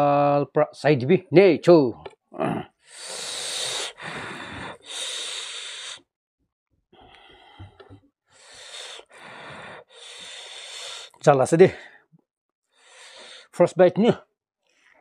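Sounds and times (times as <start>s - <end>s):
person breathing hard through mouth: 2.4s - 6.1s, 7.0s - 11.2s, 12.7s - 13.6s.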